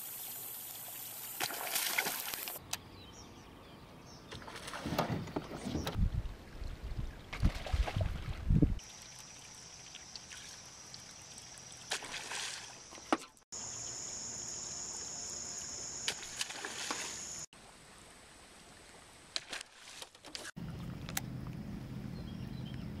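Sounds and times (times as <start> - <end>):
lures splashing on water: 1.4 - 2.6, 7.3 - 13.1, 16.1 - 17.4, 19.3 - 21.2.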